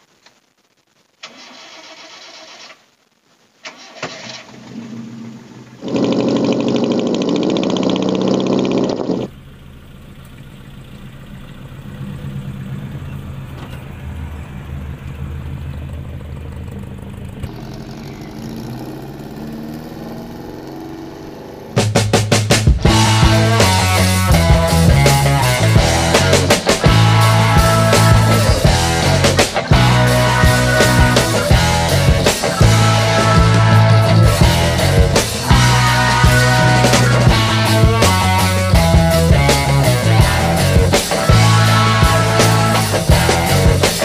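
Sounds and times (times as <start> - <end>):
pickup engine starting and running: 1.1 - 2.9, 3.6 - 44.0.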